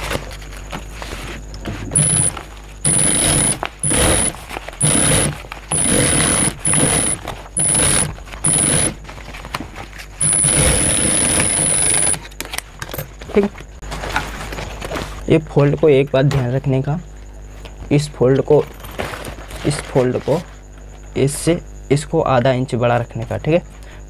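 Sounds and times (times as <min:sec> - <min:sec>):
industrial sewing machine whine: 0:02.0 - 0:09.1, 0:10.2 - 0:12.3.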